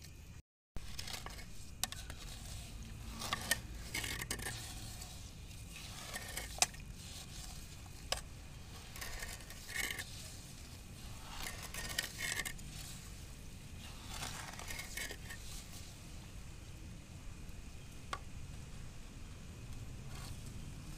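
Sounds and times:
cooking utensils scraping: 0:00.8 - 0:15.8.

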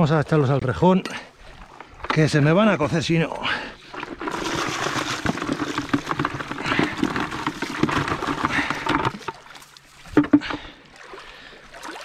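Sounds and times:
crayfish clattering and scraping: 0:03.8 - 0:09.5.

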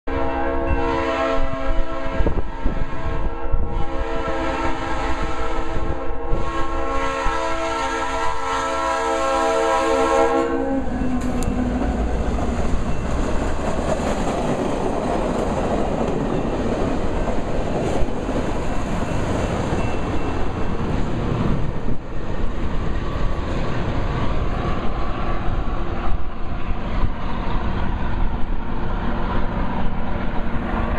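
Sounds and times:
locomotive air horn blasts: 0:00.1 - 0:11.8
train wheels clattering over rails: 0:10.9 - 0:26.0.

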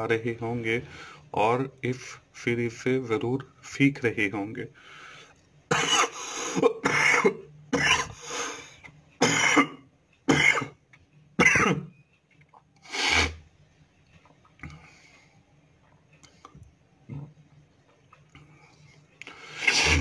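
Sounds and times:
man clearing throat: 0:05.7 - 0:08.2, 0:09.2 - 0:10.7, 0:11.4 - 0:11.9
man coughing: 0:05.7 - 0:08.2, 0:09.2 - 0:10.7, 0:11.4 - 0:11.9.

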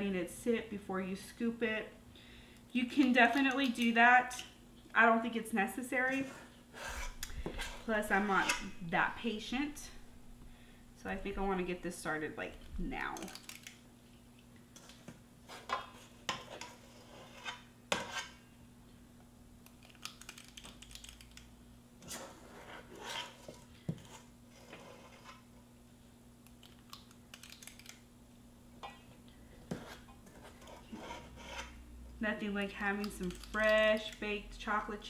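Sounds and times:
metal scoop scraping steel bowl: 0:06.2 - 0:08.8.

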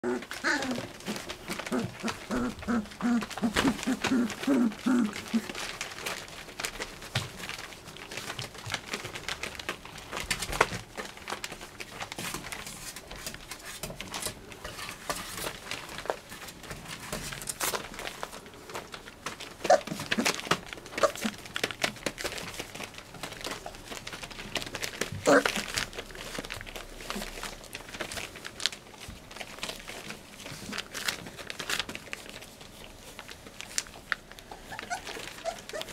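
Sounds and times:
puppy grunting: 0:00.0 - 0:05.8, 0:19.6 - 0:21.5, 0:25.2 - 0:25.8, 0:34.5 - 0:35.9
plastic sheeting crinkling: 0:00.0 - 0:35.9
puppies scrambling: 0:00.0 - 0:35.9.

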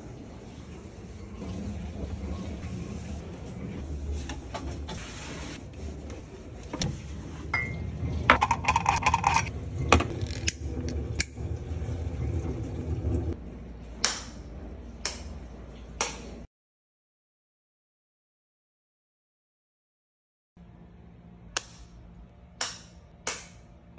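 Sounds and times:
low steady hum: 0:20.6 - 0:23.9.

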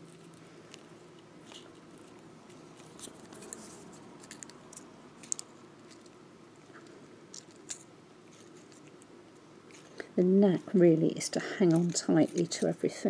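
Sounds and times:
wire twisting clicks: 0:04.2 - 0:06.2.

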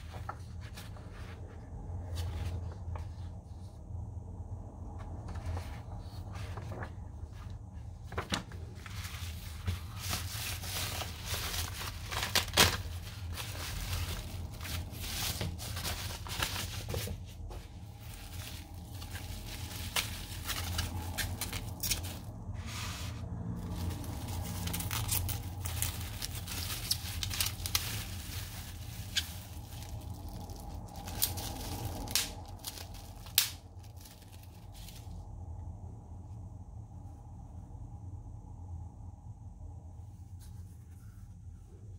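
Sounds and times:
magazine pages rustling: 0:00.0 - 0:03.5, 0:05.0 - 0:35.2
bubble wrap crinkling: 0:08.2 - 0:22.6, 0:23.5 - 0:35.2.

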